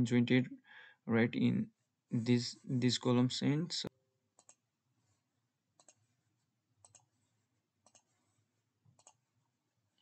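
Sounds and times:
computer mouse clicks: 4.4s - 4.7s, 5.8s - 6.1s, 6.8s - 7.1s, 7.8s - 8.1s, 8.9s - 9.2s.

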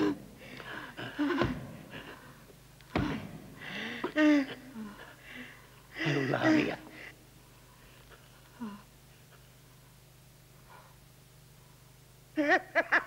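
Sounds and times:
person crying out and gasping: 3.0s - 5.1s.

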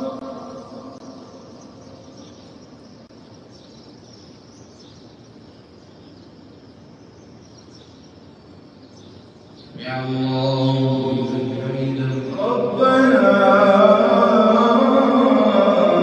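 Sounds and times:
low courtyard background noise: 0.0s - 16.0s.

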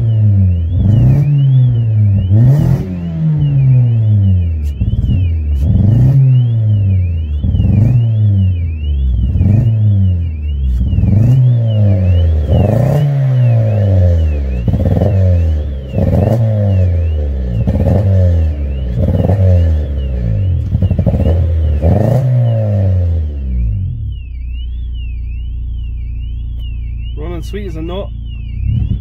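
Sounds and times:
car engine revving: 0.0s - 29.0s
warbling alarm-like tone: 0.0s - 29.0s
engine backfire pops: 20.6s - 22.5s, 28.3s - 29.0s.

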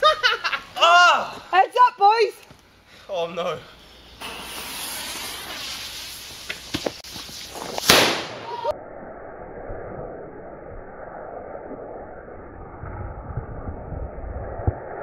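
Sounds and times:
firework fizzing: 3.8s - 8.8s
loud firework bang: 4.2s - 5.9s, 7.8s - 8.7s
firework pops: 4.2s - 8.7s.

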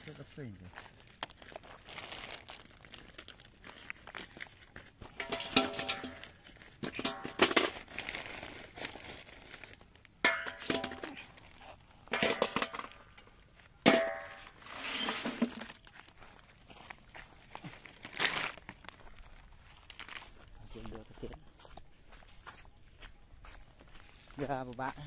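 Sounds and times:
plastic sack rustling: 0.0s - 20.5s.

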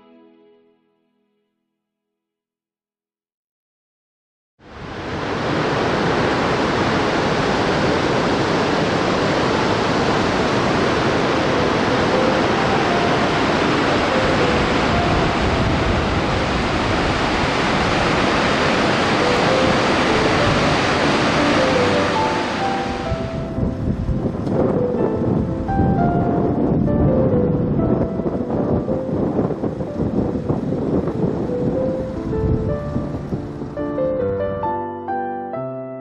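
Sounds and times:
river rushing: 4.6s - 26.6s.

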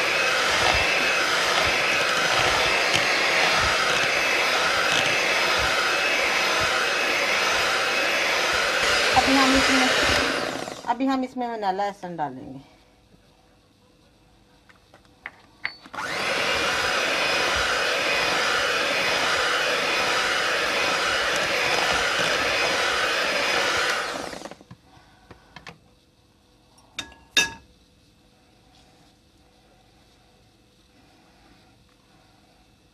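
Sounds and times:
electric hand mixer running: 0.0s - 11.0s, 15.9s - 24.8s.

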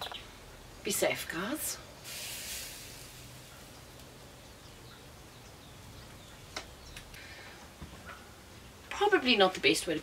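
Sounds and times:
water hissing on smouldering stick: 2.0s - 3.8s.

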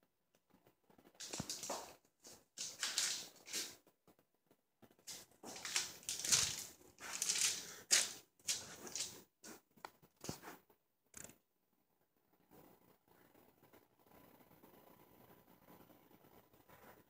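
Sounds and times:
rustling and crinkling: 1.0s - 3.9s, 4.8s - 10.6s.

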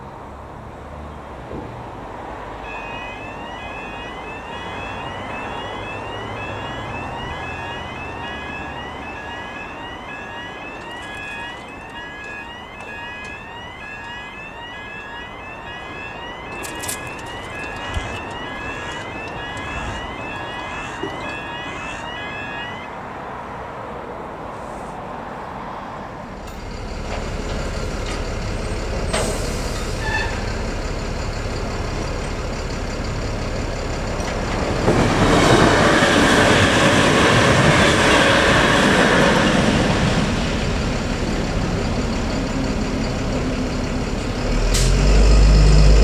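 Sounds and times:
road traffic: 0.0s - 46.0s
level crossing alarm tone: 2.6s - 23.1s.

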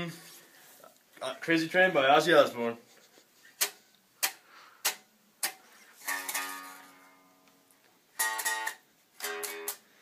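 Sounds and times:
guitar chord ringing: 8.2s - 9.8s.

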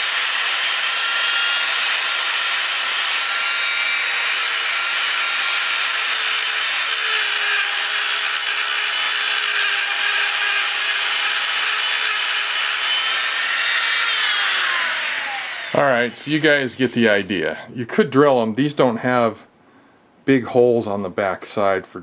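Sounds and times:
rotary tool grinding metal: 0.0s - 17.4s.

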